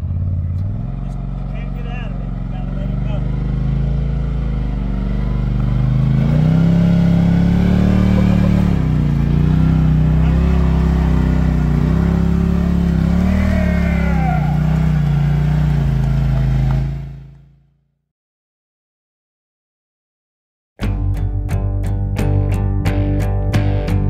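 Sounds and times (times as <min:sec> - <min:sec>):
off-road vehicle engine revving: 0:00.0 - 0:17.6.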